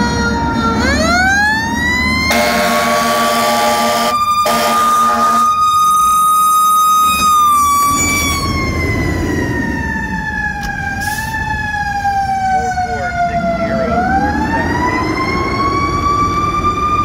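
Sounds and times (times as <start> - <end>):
mechanical siren winding down: 0.0 - 17.0
air horn blasts: 2.3 - 5.5.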